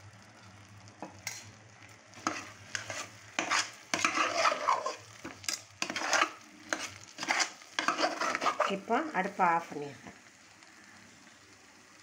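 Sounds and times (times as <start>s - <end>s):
metal ladle scraping a pan: 2.2s - 9.0s.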